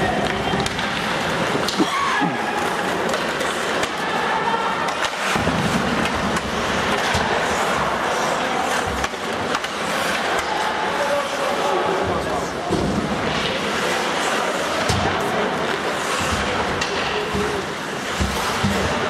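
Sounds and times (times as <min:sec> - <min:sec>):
hockey sticks and puck clacking: 0:00.0 - 0:19.0
skates scraping ice: 0:00.0 - 0:19.0.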